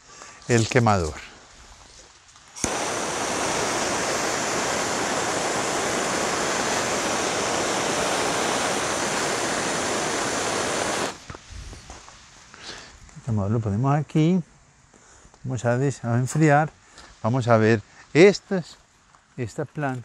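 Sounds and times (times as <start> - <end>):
gas torch ignition click: 2.6 - 11.4
gas torch flame hissing: 2.6 - 11.7.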